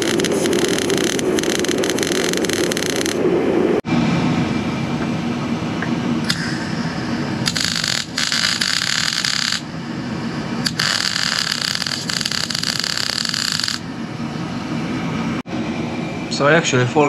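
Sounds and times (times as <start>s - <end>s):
welding arc crackling: 0.0s - 3.2s, 6.3s - 9.7s, 10.6s - 13.8s
steady low hum: 0.0s - 17.0s.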